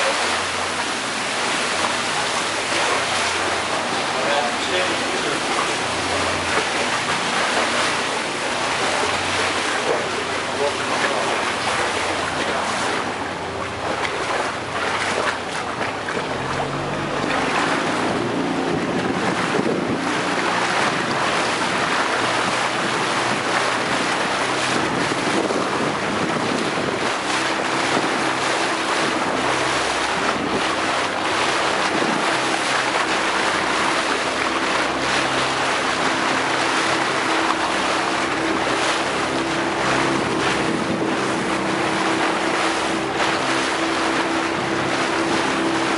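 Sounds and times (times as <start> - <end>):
motorboat engine running: 0.0 - 45.9
water splashing past hull: 0.0 - 45.9
wind on microphone: 0.0 - 45.9.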